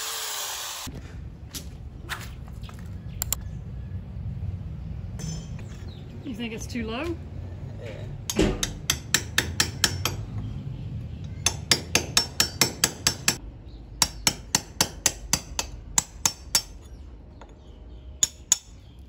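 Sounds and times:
hammer striking metal: 0:05.2 - 0:05.7, 0:08.3 - 0:10.4, 0:11.4 - 0:13.4.

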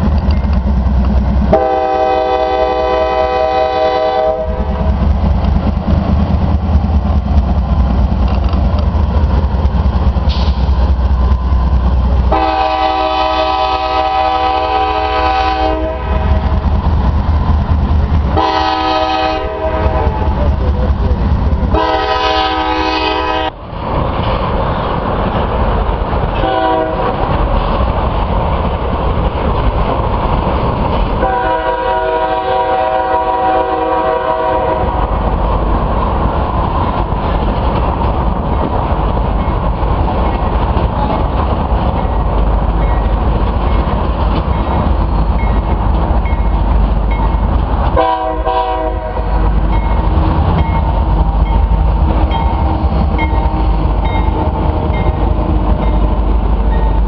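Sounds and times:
freight train rumbling past: 0:00.0 - 0:57.0
train air horn blasts: 0:01.5 - 0:04.7, 0:12.3 - 0:16.6, 0:18.4 - 0:20.3, 0:21.7 - 0:23.6, 0:26.4 - 0:27.2, 0:31.2 - 0:35.0, 0:48.0 - 0:49.5.

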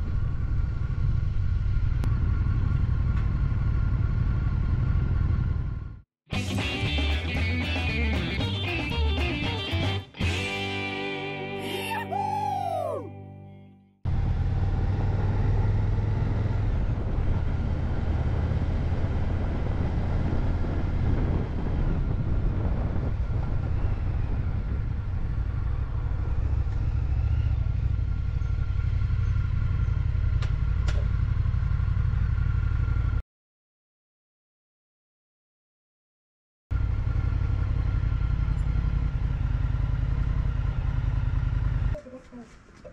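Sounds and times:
wind rumble: 0:16.2 - 0:29.7
motorcycle engine: 0:23.2 - 0:33.2, 0:36.7 - 0:42.0.

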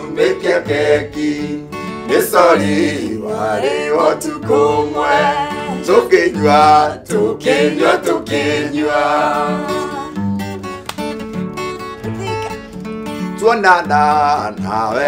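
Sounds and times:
acoustic guitar strumming: 0:00.0 - 0:15.0
man singing: 0:02.1 - 0:08.3, 0:13.4 - 0:15.0.

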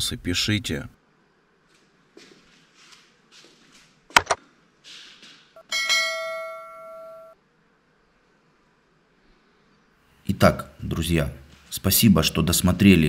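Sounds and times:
bell ding: 0:05.6 - 0:07.4.

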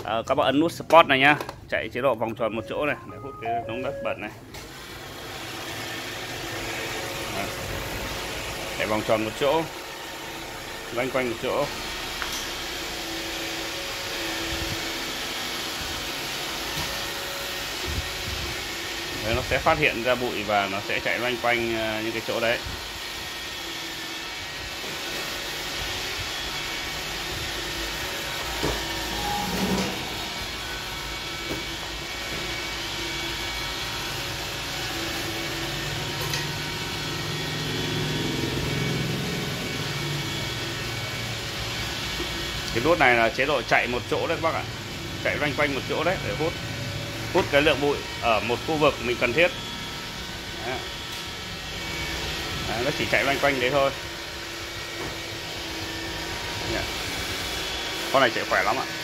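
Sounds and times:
robot vacuum whirring: 0:22.0 - 0:42.9.

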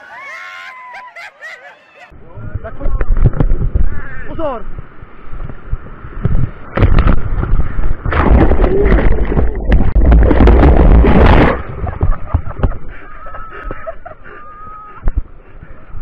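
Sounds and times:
churning rushing water: 0:08.0 - 0:12.5.

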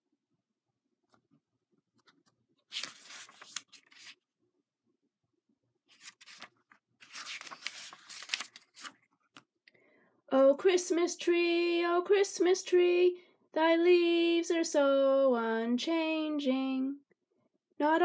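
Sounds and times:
book pages turning: 0:02.0 - 0:04.3, 0:05.9 - 0:09.5.

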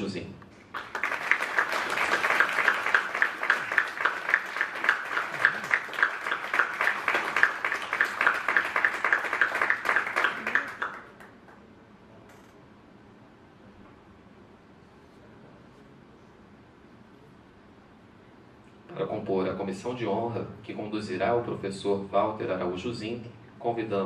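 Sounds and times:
audience applauding: 0:00.7 - 0:11.6.

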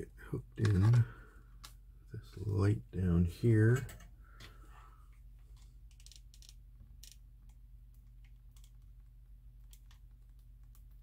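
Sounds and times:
steady low hum: 0:00.0 - 0:11.0
small clicks of hands handling wiring: 0:03.7 - 0:09.0, 0:09.6 - 0:11.0.

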